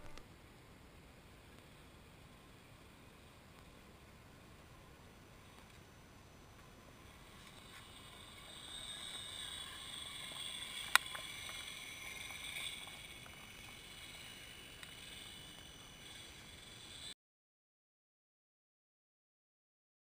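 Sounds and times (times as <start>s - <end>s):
electric motor whining: 7.0s - 17.1s.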